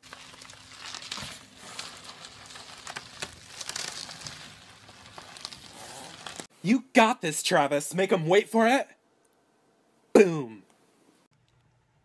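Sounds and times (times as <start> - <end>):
bubble wrap crinkling and crackling: 0.0 - 6.5.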